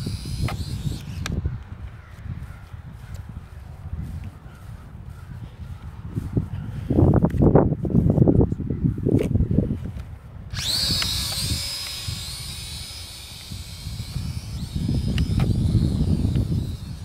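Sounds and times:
toy drone motors whining: 0:00.0 - 0:02.0, 0:09.8 - 0:17.0.

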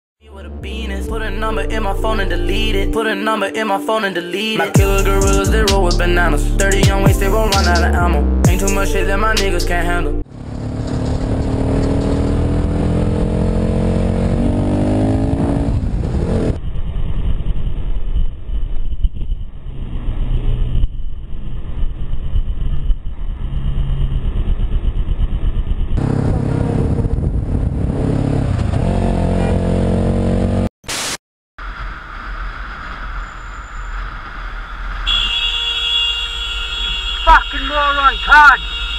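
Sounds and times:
motorcycle engine accelerating: 0:10.2 - 0:30.7.

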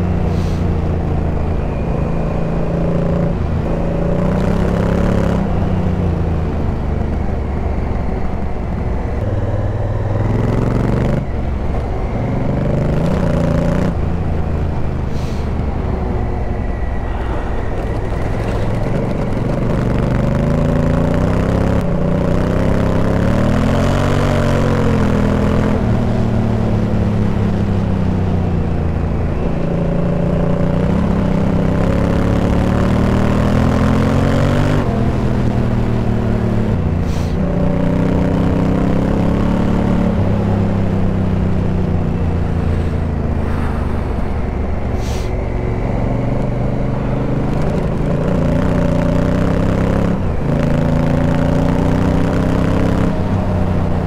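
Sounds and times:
motorcycle engine revving: 0:00.0 - 0:54.0
wind rush: 0:05.3 - 0:21.0, 0:41.6 - 0:48.6.

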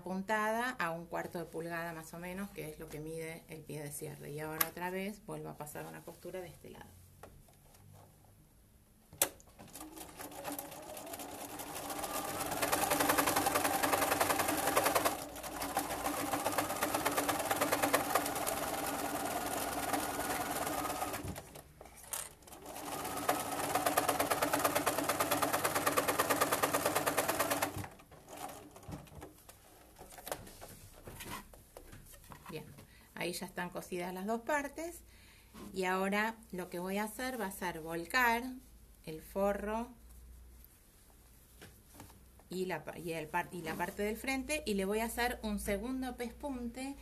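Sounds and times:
sewing machine stitching: 0:09.5 - 0:29.4.

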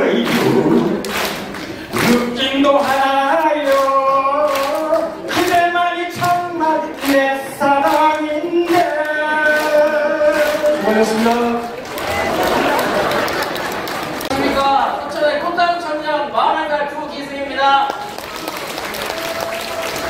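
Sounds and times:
man singing into a microphone: 0:00.0 - 0:01.1, 0:01.9 - 0:11.8
sharp clap-like beat: 0:00.2 - 0:12.0.

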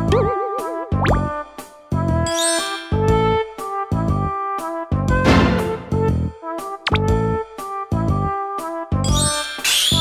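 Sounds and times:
playful bouncy music: 0:00.0 - 0:04.4, 0:05.0 - 0:07.4.

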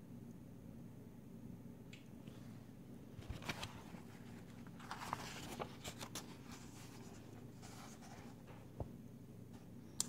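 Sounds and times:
book pages rustling: 0:03.1 - 0:08.9.

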